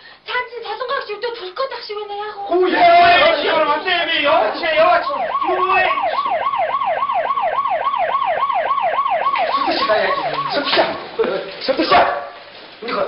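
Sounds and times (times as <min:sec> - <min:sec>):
siren yelping: 0:04.5 - 0:11.2.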